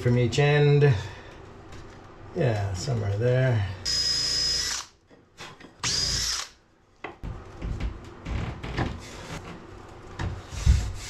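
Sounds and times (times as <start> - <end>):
cordless drill whine: 3.9 - 4.9, 5.8 - 6.5.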